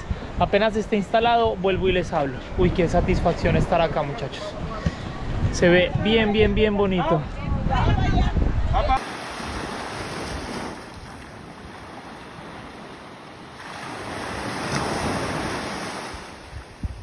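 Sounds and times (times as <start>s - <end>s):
wind buffeting microphone: 0.0s - 17.0s
sea waves washing onto beach: 9.0s - 17.0s.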